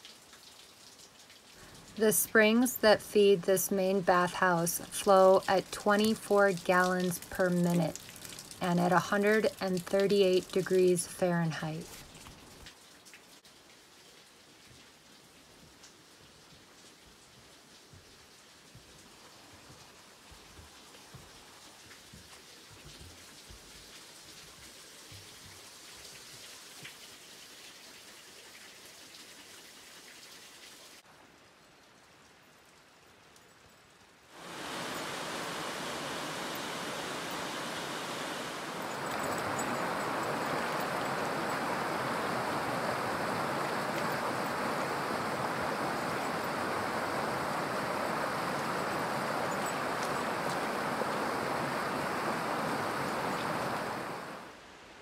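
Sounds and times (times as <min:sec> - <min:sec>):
faint steady hiss: 0:00.0 - 0:55.0
creek water rushing over stones: 0:01.5 - 0:12.7, 0:34.3 - 0:55.0.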